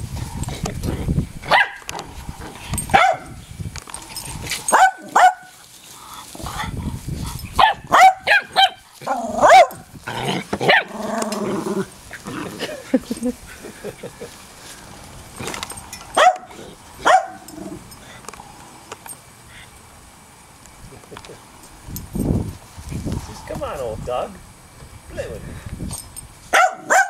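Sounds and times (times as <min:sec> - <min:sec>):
dogs barking and yipping: 0:01.4 - 0:14.4, 0:15.4 - 0:18.2, 0:26.5 - 0:27.0
dog growling: 0:09.0 - 0:13.0, 0:16.5 - 0:18.6.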